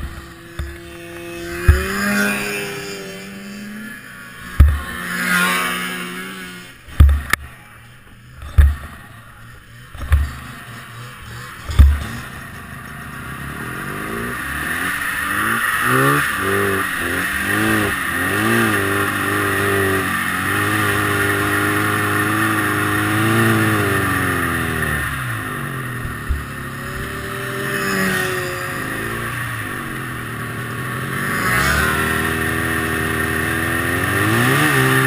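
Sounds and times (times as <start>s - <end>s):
snowmobile engine revving: 0.0s - 35.0s
heavy thump: 4.6s - 4.8s, 7.0s - 7.3s, 8.4s - 8.9s, 11.7s - 12.1s.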